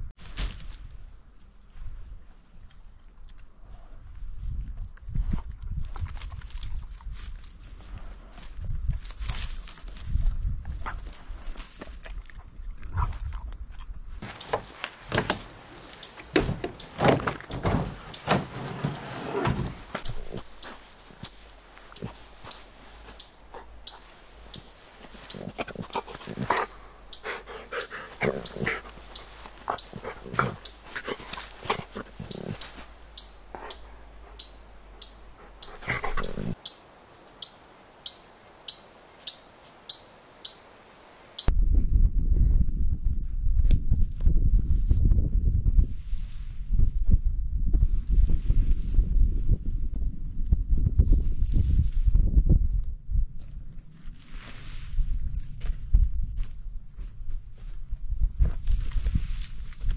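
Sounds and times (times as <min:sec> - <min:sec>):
dog rustling in grass: 0:17.8 - 0:34.4.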